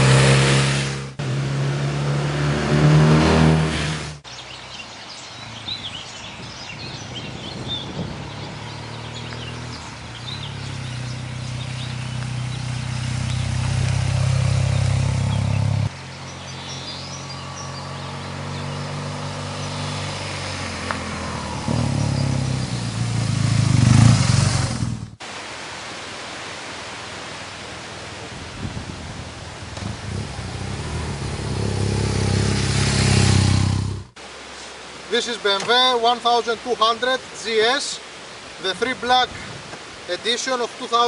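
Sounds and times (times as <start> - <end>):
motorcycle engine passing by: 0.0 - 4.2, 7.7 - 25.2, 29.7 - 34.2
steady outdoor hiss: 4.1 - 41.0.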